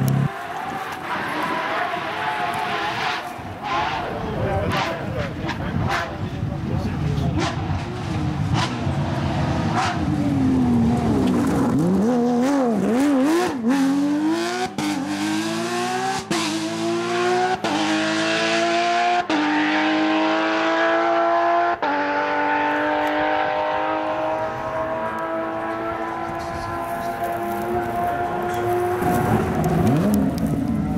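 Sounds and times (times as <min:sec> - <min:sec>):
car engine revving and accelerating: 0:06.9 - 0:30.9.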